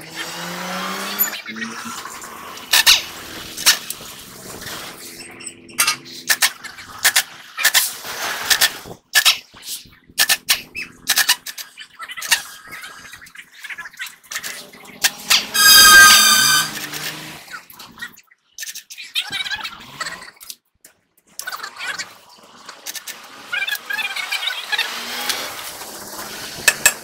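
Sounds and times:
pneumatic impact wrench: 0:00.0 - 0:11.7, 0:14.4 - 0:17.5, 0:24.8 - 0:27.0
metal clicks and clanks: 0:05.1 - 0:07.8, 0:10.1 - 0:12.4, 0:26.6 - 0:27.0.

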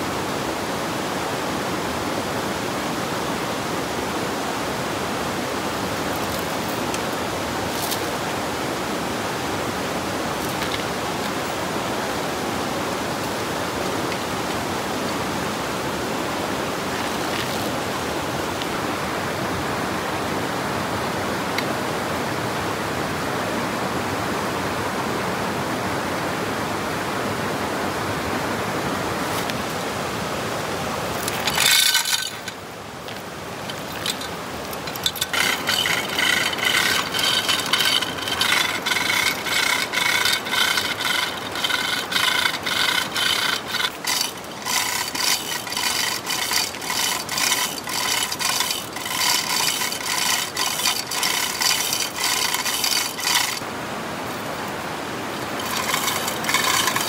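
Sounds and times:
wood rasping by hand: 0:33.7 - 0:53.6, 0:55.4 - 0:57.0.

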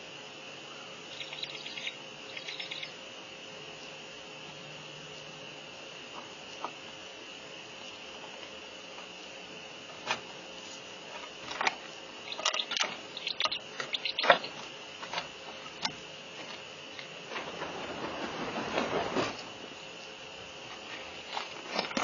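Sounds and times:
faint high hum: 0:00.0 - 0:22.0
owl clicks and scrapes: 0:01.1 - 0:02.9, 0:12.3 - 0:14.6.

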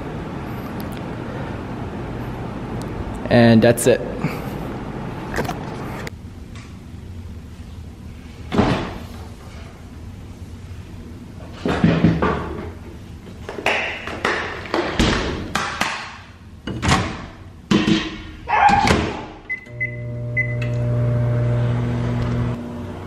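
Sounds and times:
appliance doors opening and shutting: 0:16.6 - 0:22.5
microwave oven humming: 0:19.5 - 0:23.0.

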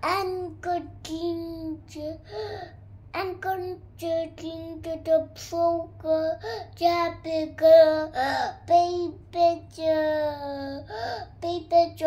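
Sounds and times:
boy singing: 0:03.2 - 0:12.0.

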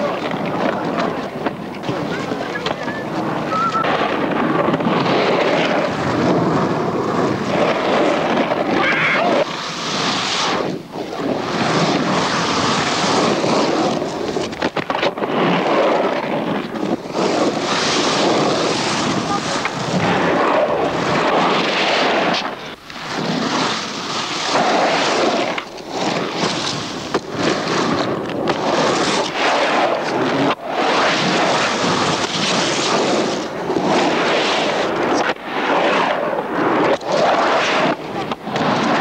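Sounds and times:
skateboard wheels rolling on concrete: 0:00.0 - 0:39.0.

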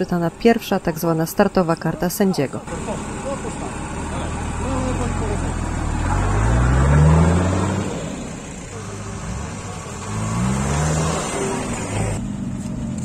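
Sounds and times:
outdoor noise: 0:00.0 - 0:13.0
engine revving: 0:02.5 - 0:13.0.

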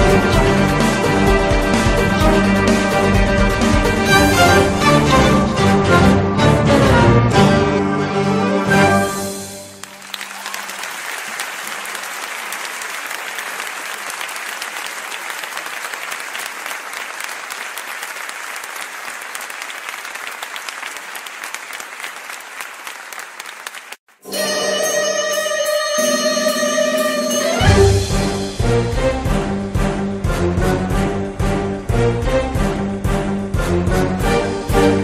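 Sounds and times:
background music: 0:00.0 - 0:10.2, 0:24.2 - 0:35.0
crowd applauding: 0:09.6 - 0:24.1.

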